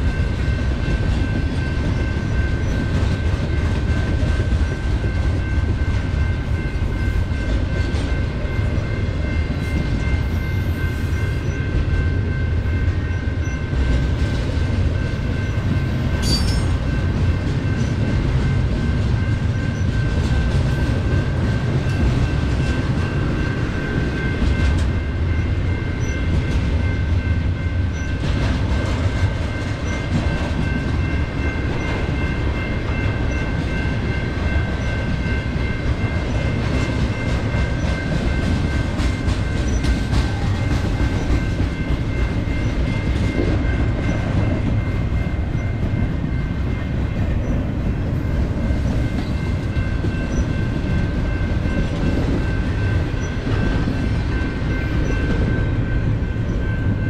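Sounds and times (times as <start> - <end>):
train rumbling over rails: 0.0 - 57.0
high ringing tone: 15.0 - 18.2.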